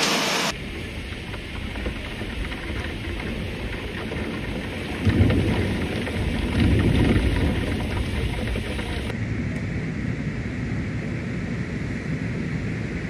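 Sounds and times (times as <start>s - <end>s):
wind and heavy rain rushing: 0.0s - 9.2s
low rumbling surges: 0.0s - 13.0s.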